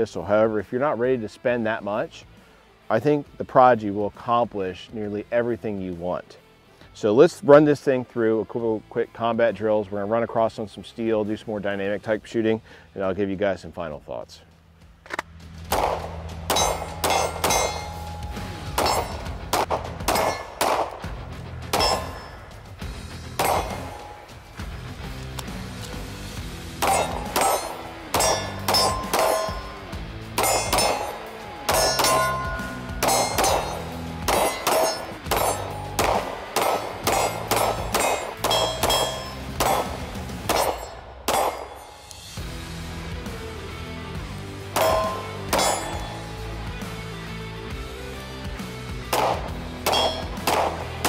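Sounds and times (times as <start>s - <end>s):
background music: 0.0s - 51.0s
metallic clang of steel target: 15.7s - 20.9s, 21.6s - 22.6s, 23.2s - 24.5s, 26.7s - 42.4s, 44.7s - 46.8s, 49.1s - 51.0s
pistol shots: 15.7s - 22.6s, 23.4s - 24.4s, 26.7s - 42.2s, 44.7s - 46.4s, 49.1s - 51.0s.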